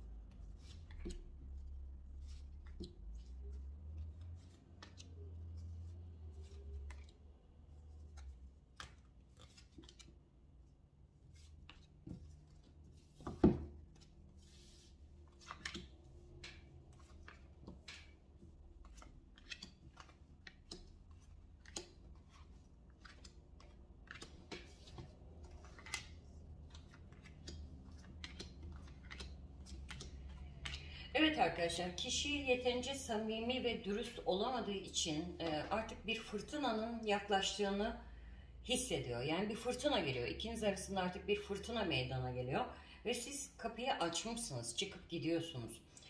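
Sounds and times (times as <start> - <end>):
cards laid on a table: 0.2 - 31.8.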